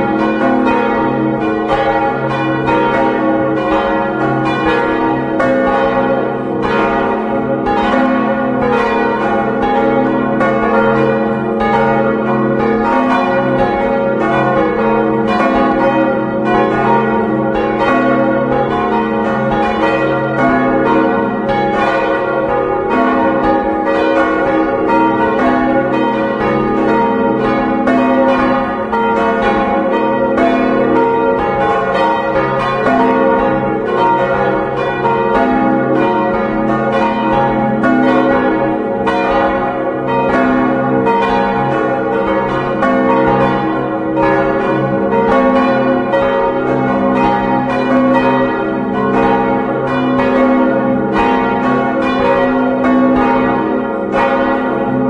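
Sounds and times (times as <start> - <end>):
church bells ringing: 0.0 - 55.0.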